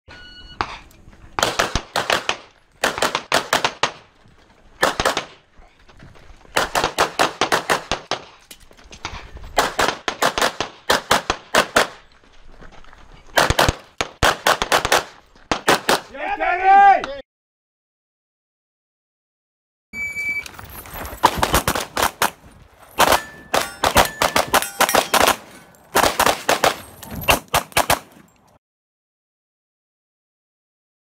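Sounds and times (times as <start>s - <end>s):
rapid pistol fire: 1.4s - 4.0s, 4.8s - 5.4s, 6.6s - 8.2s, 13.4s - 16.1s, 26.0s - 26.8s.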